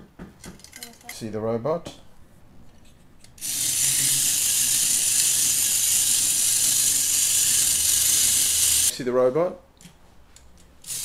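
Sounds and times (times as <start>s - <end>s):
toy robot whirring rattle: 3.4s - 8.9s.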